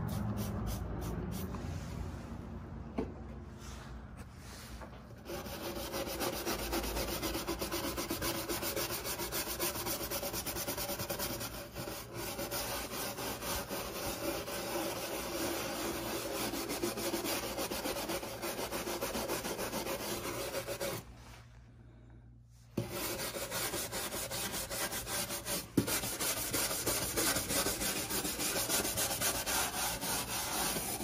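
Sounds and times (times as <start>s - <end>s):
scrubbing greasy surface: 22.8s - 31.0s.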